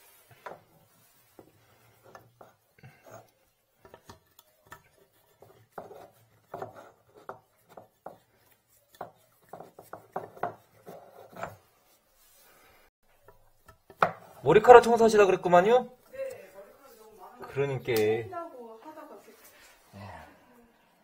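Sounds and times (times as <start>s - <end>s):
tool clicking and scraping drain fittings: 2.1s - 11.6s.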